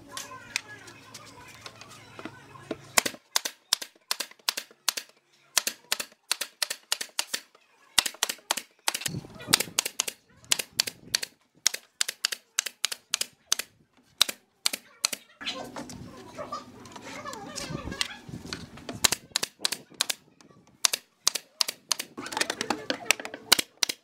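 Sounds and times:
nail gun firing into wood: 0:03.0 - 0:15.2, 0:19.0 - 0:20.2, 0:20.8 - 0:22.2, 0:23.5 - 0:24.0.

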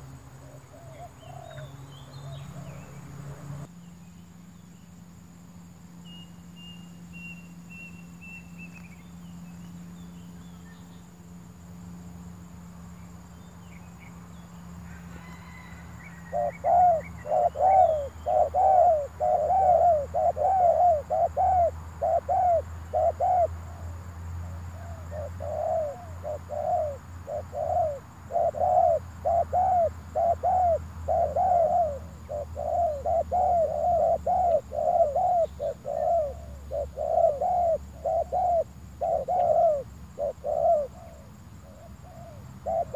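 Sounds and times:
doves cooing: 0:14.9 - 0:24.0, 0:24.6 - 0:42.9.

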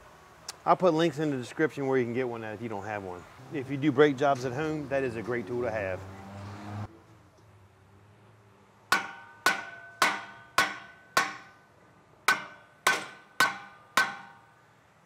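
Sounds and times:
hammer striking a brake rotor: 0:08.9 - 0:11.6, 0:12.2 - 0:14.6.

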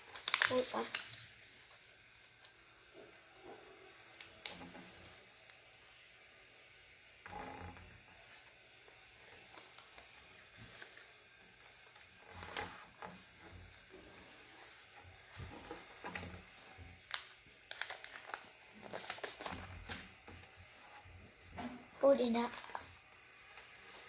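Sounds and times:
crisp paper crinkles and taps: 0:00.0 - 0:03.1, 0:15.3 - 0:20.8, 0:21.5 - 0:24.0
paper rustling and folding: 0:00.0 - 0:03.6, 0:08.2 - 0:24.0.

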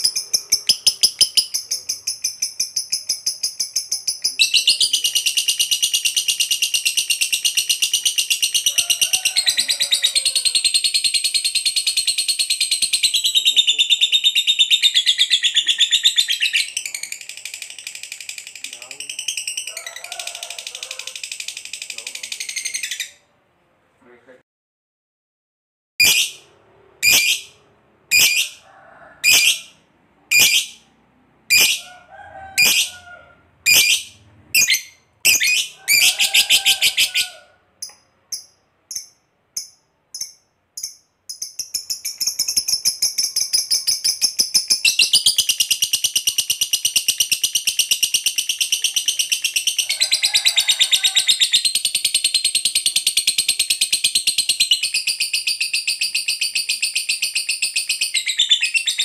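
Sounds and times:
lovebird chirping: 0:00.0 - 0:08.7, 0:09.5 - 0:23.3, 0:26.0 - 0:28.6, 0:29.2 - 0:30.9, 0:31.5 - 0:31.9, 0:32.6 - 0:33.0, 0:33.6 - 0:50.2, 0:51.2 - 0:59.0
lovebird rapid chattering trill: 0:00.0 - 0:08.8, 0:26.0 - 0:26.4, 0:27.0 - 0:27.5, 0:28.1 - 0:28.6, 0:30.3 - 0:30.8, 0:31.5 - 0:31.9, 0:32.6 - 0:32.9, 0:33.7 - 0:37.2, 0:38.3 - 0:50.1.

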